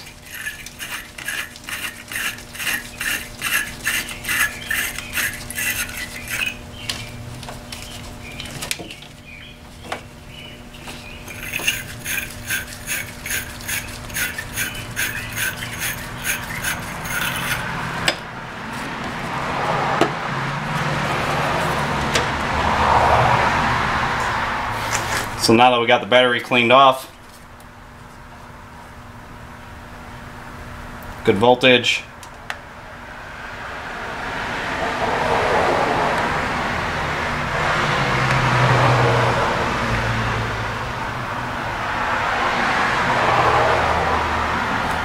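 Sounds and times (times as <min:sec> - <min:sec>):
brush scraping metal clamp: 0:00.0 - 0:09.1, 0:10.7 - 0:19.0.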